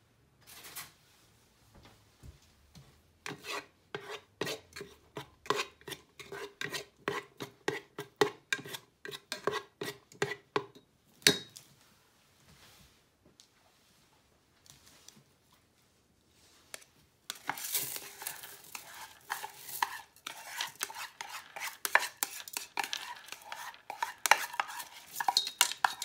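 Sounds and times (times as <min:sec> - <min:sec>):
plastic paddle scraping metal pot: 0:03.2 - 0:10.7, 0:17.3 - 0:26.0.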